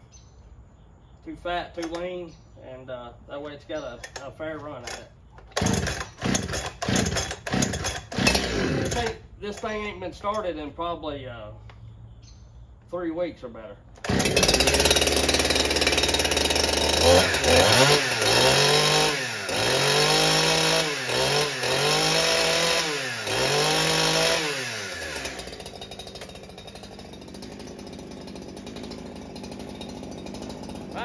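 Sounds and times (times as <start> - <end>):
chainsaw starting and revving: 4.8 - 9.3, 14.0 - 31.0.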